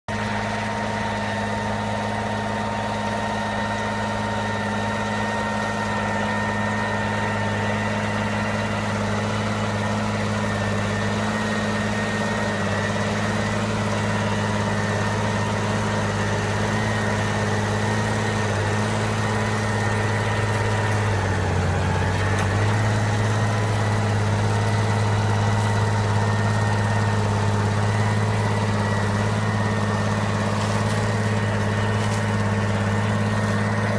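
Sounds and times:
tractor diesel engine: 0.0s - 33.9s
steady whine: 0.1s - 33.9s.

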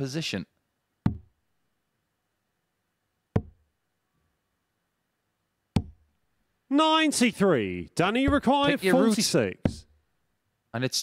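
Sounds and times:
darts thudding into dartboard: 3.4s - 3.6s.

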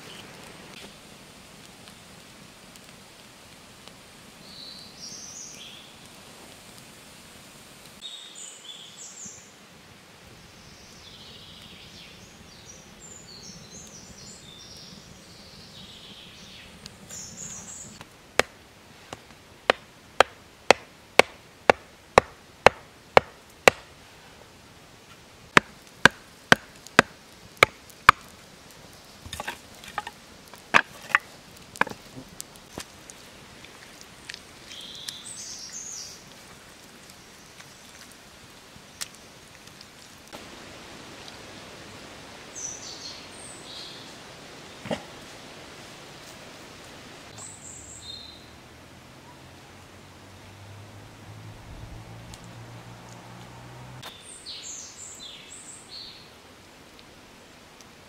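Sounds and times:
sharp wooden knocks: 19.7s - 23.8s
sticks clattering: 29.3s - 32.1s.

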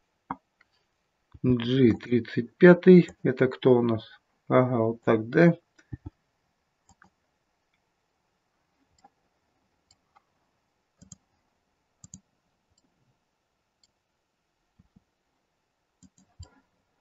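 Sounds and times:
faint computer mouse clicks: 11.0s - 11.2s, 12.0s - 12.2s, 16.0s - 16.6s.

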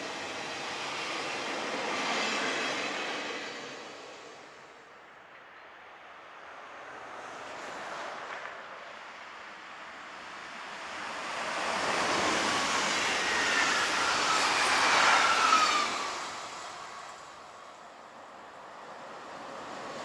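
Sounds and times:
train rushing past: 0.0s - 4.8s, 10.7s - 17.8s.

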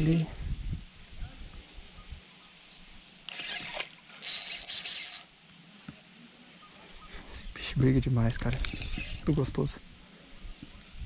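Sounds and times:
fishing reel drag buzzing: 3.3s - 5.4s, 8.6s - 9.3s.

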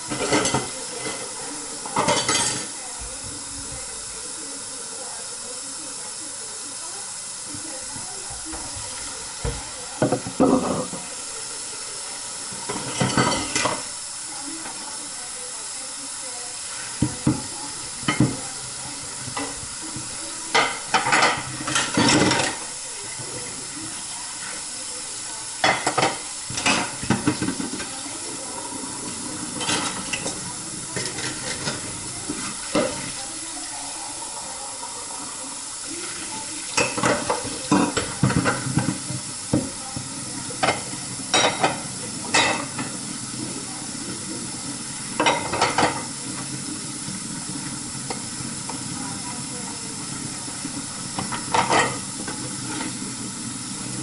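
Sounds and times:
dishes clinking and knocking: 0.0s - 2.7s, 9.4s - 11.1s, 12.6s - 13.9s, 17.0s - 18.5s, 19.3s - 22.6s, 25.6s - 27.9s, 29.4s - 33.1s, 36.7s - 43.0s, 45.1s - 46.5s, 51.1s - 53.0s
faucet running into sink: 0.0s - 54.0s.

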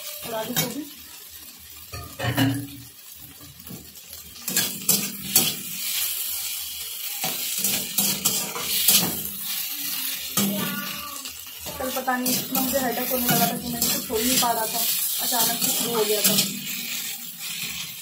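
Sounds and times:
oil sizzling: 0.0s - 18.0s
metal spatula scraping pan: 4.4s - 18.0s.

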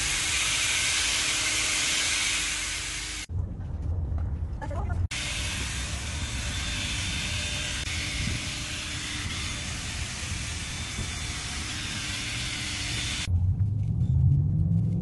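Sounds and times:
drill motor whine: 0.0s - 3.3s, 5.1s - 13.3s
foam pad rubbing hiss: 0.0s - 3.3s.

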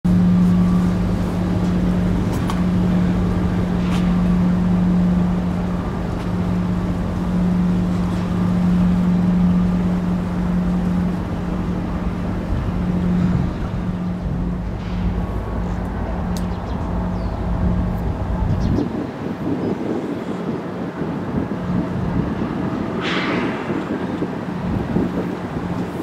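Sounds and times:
locomotive engines droning: 0.0s - 26.0s.

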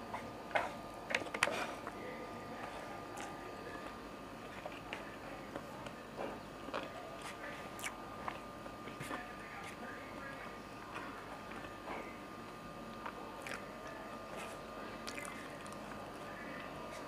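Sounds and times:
faint steady hum: 0.0s - 17.0s
person eating: 6.7s - 8.4s, 13.0s - 13.7s, 14.3s - 16.0s.

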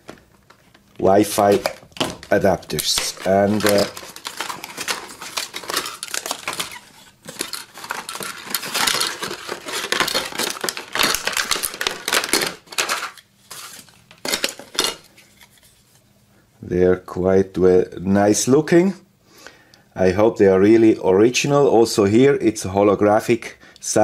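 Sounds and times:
plastic packaging rustling: 0.0s - 16.0s
cardboard box opened: 1.4s - 13.8s.

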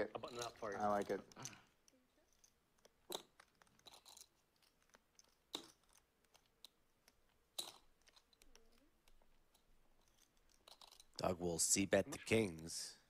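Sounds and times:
poker chips clicking: 0.2s - 11.3s
sharp poker chip clacks: 2.3s - 11.2s.

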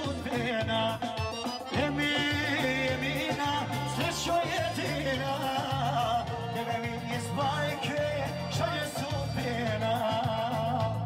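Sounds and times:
folk dance music on accordion: 0.0s - 11.0s.

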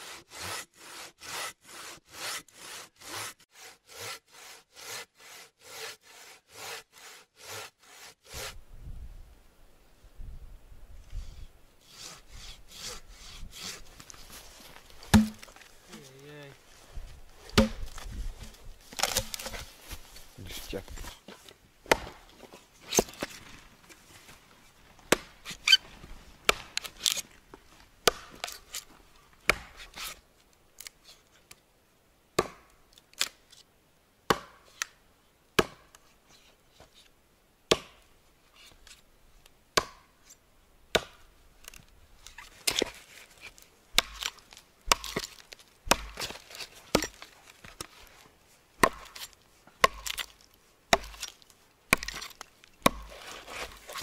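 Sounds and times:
hatchet chopping wood: 15.1s - 15.6s, 17.5s - 18.0s, 19.0s - 19.6s, 21.8s - 22.2s, 25.1s - 25.3s, 26.5s - 26.9s, 28.0s - 28.6s, 29.5s - 29.8s, 32.4s - 32.7s, 34.3s - 34.9s, 35.6s - 36.0s, 37.7s - 38.0s, 39.8s - 40.1s, 40.9s - 41.3s, 43.9s - 47.9s, 48.8s - 54.0s.

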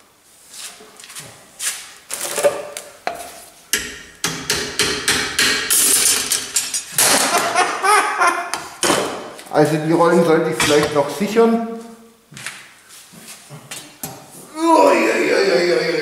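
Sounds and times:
metallic knocks with ringing: 3.7s - 5.8s.

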